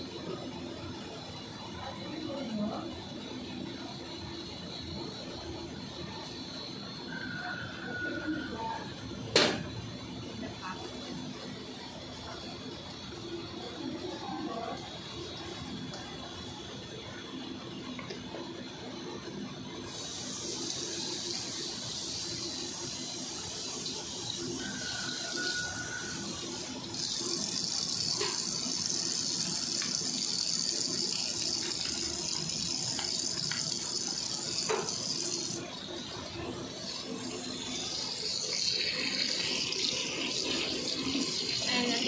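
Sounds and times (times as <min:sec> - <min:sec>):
bottle being rinsed: 0:19.9 - 0:42.0
tap water running into steel sink: 0:19.9 - 0:42.0.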